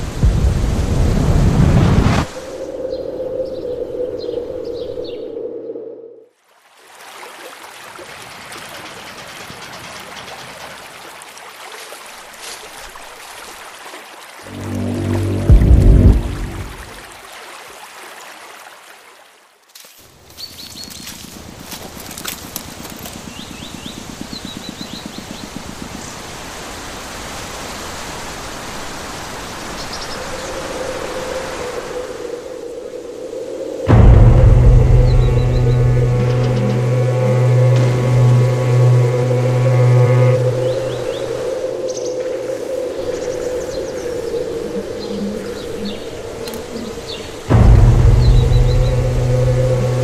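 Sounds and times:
river water rushing and lapping: 0:06.3 - 0:50.0
steady rushing noise: 0:14.5 - 0:17.1, 0:33.9 - 0:41.9, 0:47.5 - 0:50.0.

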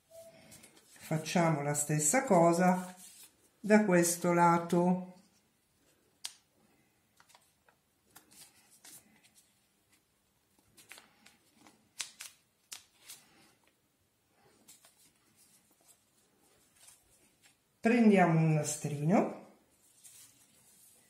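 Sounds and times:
paper rustling and crinkling: 0:00.3 - 0:01.4, 0:02.6 - 0:03.5, 0:07.2 - 0:13.8, 0:14.4 - 0:17.6, 0:19.7 - 0:21.0
crisp paper clicks: 0:06.2 - 0:06.5, 0:10.6 - 0:13.4.

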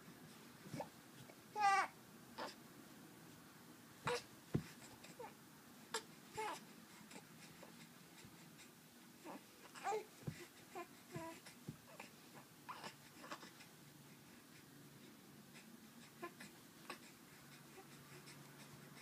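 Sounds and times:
baby cooing and babbling: 0:01.5 - 0:02.6, 0:04.1 - 0:07.2, 0:09.2 - 0:12.1, 0:12.7 - 0:13.6
soft knocks: 0:04.5 - 0:04.8.

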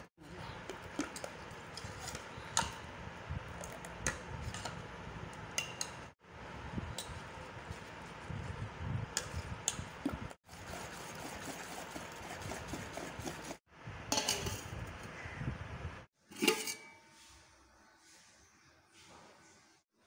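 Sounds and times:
spoon beating batter: 0:09.0 - 0:13.6.

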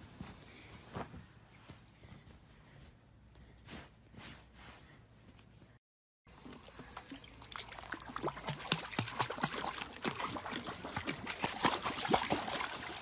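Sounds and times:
pool water splashing: 0:06.3 - 0:13.0.

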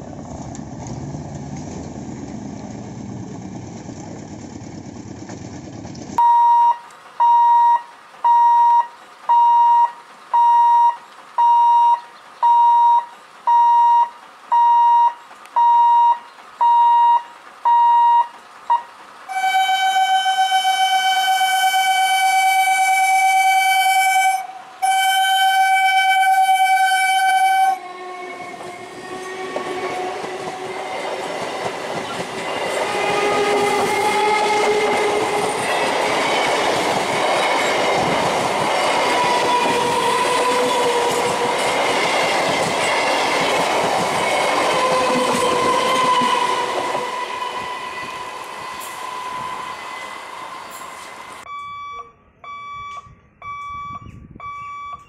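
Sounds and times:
train passing: 0:00.0 - 0:51.5
road traffic: 0:00.0 - 0:55.0
pitched tone beeping: 0:06.2 - 0:18.9, 0:51.4 - 0:55.0
train horn: 0:19.3 - 0:31.1, 0:32.6 - 0:35.9, 0:39.2 - 0:41.6, 0:44.7 - 0:50.8.

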